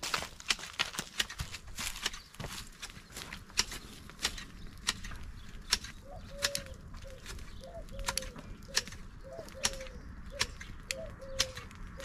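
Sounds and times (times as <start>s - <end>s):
dove cooing: 6.0s - 12.0s.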